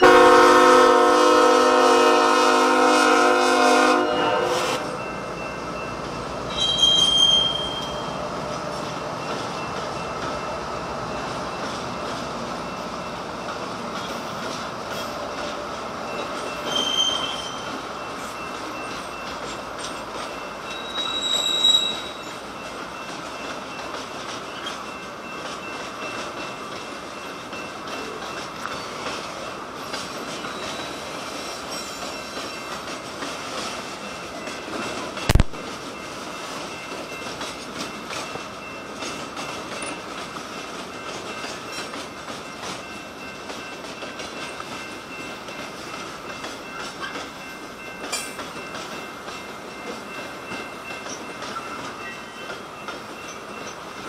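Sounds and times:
locomotive air horn: 0:00.0 - 0:05.0
train rolling past: 0:00.0 - 0:54.0
high wheel squeals: 0:06.5 - 0:08.3, 0:16.1 - 0:19.2, 0:20.3 - 0:22.4, 0:30.4 - 0:32.5.

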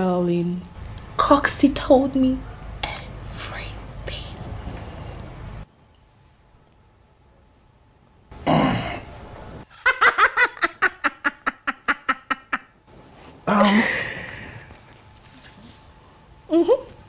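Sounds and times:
person laughing: 0:13.5 - 0:14.4.

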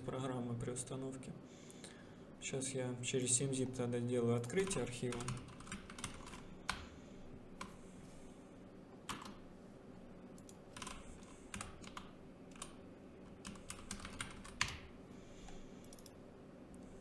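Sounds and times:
faint steady hum: 0:00.0 - 0:17.0
keyboard typing: 0:04.4 - 0:06.9, 0:09.0 - 0:09.4, 0:10.4 - 0:16.2.

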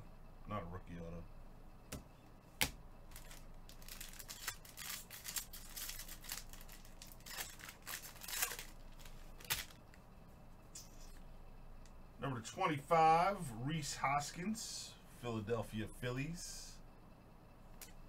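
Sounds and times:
foil wrapper crinkling and tearing: 0:03.1 - 0:09.9.

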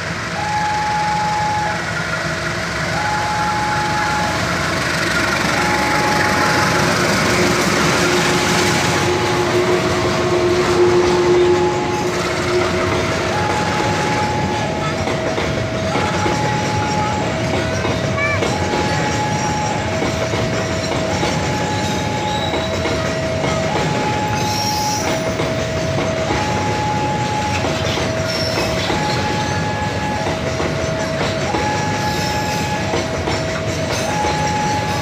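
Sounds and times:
locomotive rumble: 0:00.0 - 0:35.0
two-tone warning alarm: 0:00.3 - 0:35.0
wheels clattering over rail joints: 0:04.0 - 0:35.0.

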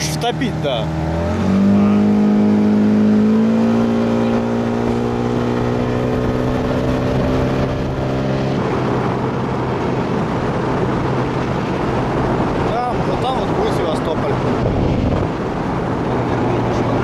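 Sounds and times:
outboard motor at full throttle: 0:00.0 - 0:17.0.

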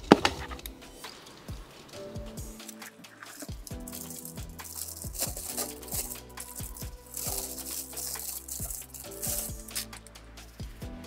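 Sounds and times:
music with deep bass beat: 0:00.0 - 0:11.0
plastic bag crinkling: 0:02.6 - 0:10.0.

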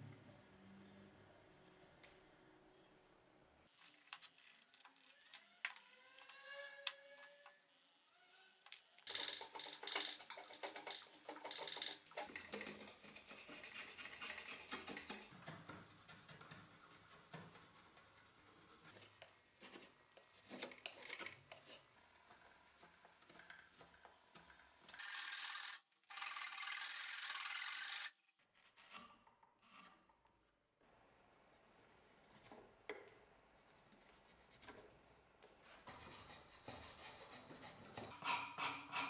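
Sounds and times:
hand saw cutting wood: 0:09.0 - 0:17.8, 0:18.6 - 0:30.1, 0:35.8 - 0:39.0
scraping strokes on wood: 0:09.1 - 0:25.8, 0:35.6 - 0:39.0.

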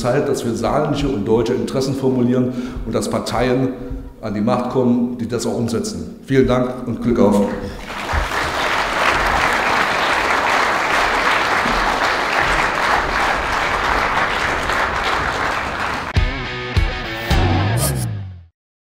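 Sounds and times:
audience applauding: 0:07.7 - 0:16.2
music: 0:15.8 - 0:18.5.

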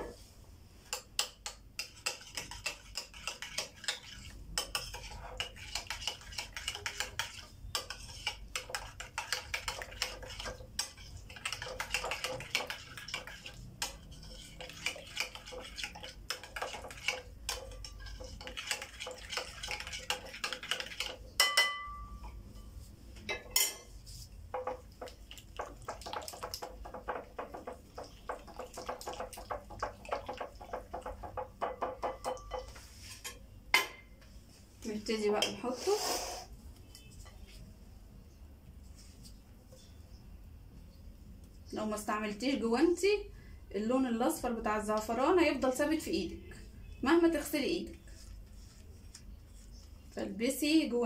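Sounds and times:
spoon clinking and scraping glass bowl: 0:01.0 - 0:33.4.

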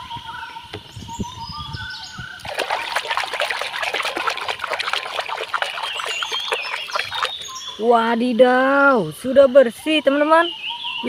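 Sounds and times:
hand splashing in water: 0:02.4 - 0:07.6.

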